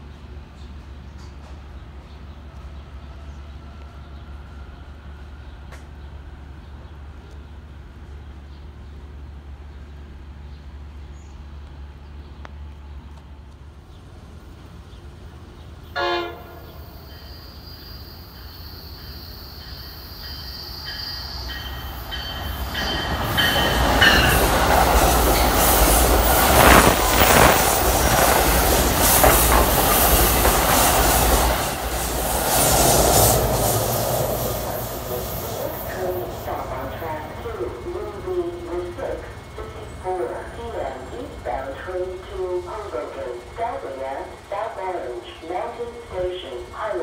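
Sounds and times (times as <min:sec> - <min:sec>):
train wheel and rail noise: 0:00.0 - 0:47.0
distant train horn toot: 0:15.9 - 0:17.5.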